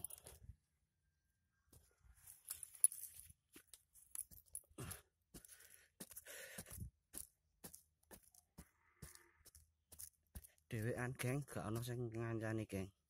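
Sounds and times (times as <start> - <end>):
hand tool scraping soil: 5.4 - 12.2.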